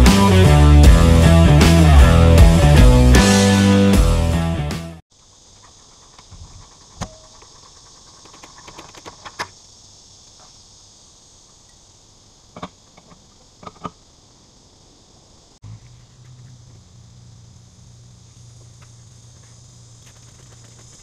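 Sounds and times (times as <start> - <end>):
high insect chorus: 5.1 - 21.0.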